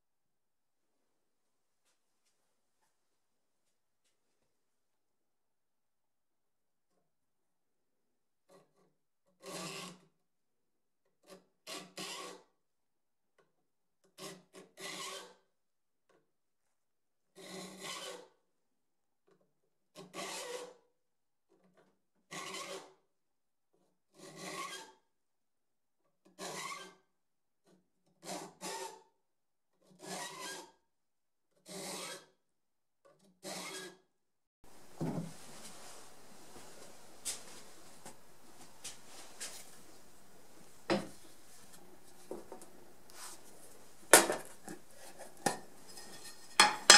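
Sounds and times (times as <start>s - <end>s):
file rasping on saw teeth: 11.7s - 12.4s, 17.4s - 18.3s, 20.0s - 20.8s, 24.2s - 24.9s, 28.2s - 29.0s, 30.0s - 30.7s, 31.7s - 32.3s
steady hiss: 34.7s - 42.3s.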